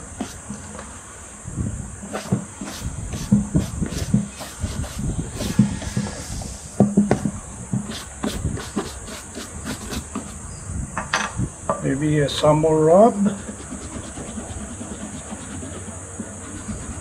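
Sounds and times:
brush scrubbing leather boot: 0.1s - 0.9s, 2.1s - 6.4s, 7.9s - 10.4s, 13.3s - 17.0s.

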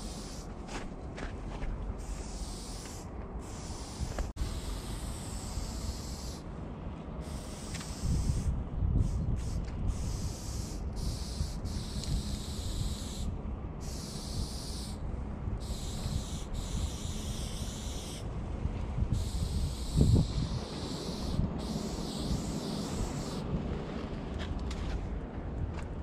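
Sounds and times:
spray paint can hissing: 2.0s - 6.4s, 7.2s - 13.2s, 19.2s - 23.4s.

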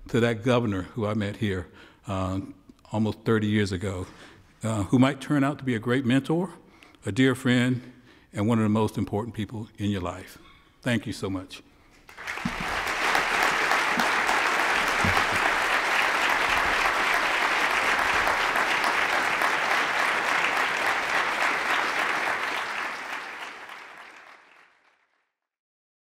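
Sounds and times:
audience applauding: 12.0s - 25.1s.

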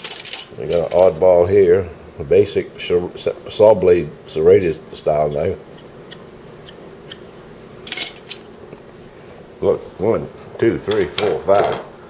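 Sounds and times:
knives clinking: 7.9s - 8.5s.

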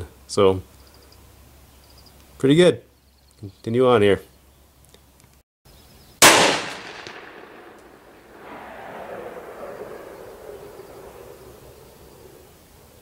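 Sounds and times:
pistol shot echoing: 6.2s - 12.5s.

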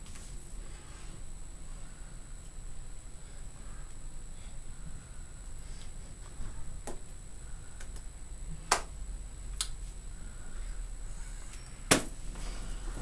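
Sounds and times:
electrical hum: 0.0s - 13.0s
sharp clicks and slaps: 7.8s - 9.8s.

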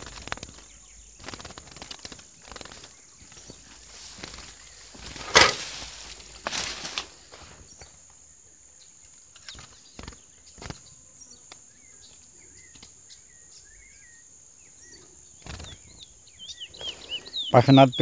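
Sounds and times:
high insect buzz: 0.0s - 8.4s, 9.1s - 17.4s
rustle: 0.0s - 14.1s
bird cage knocks and rattles: 5.0s - 5.8s
faint bird chirps: 7.5s - 18.0s.

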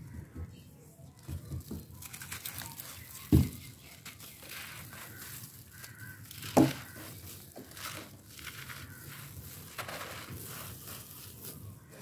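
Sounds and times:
hands crumbling gritty material: 1.1s - 12.0s
dull thuds of chunks breaking: 1.2s - 9.0s.

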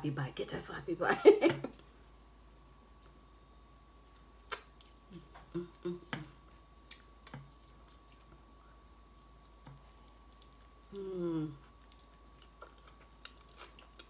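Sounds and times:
faint steady hum: 0.0s - 14.0s
mouth sounds of eating: 4.4s - 8.4s, 9.4s - 14.0s.

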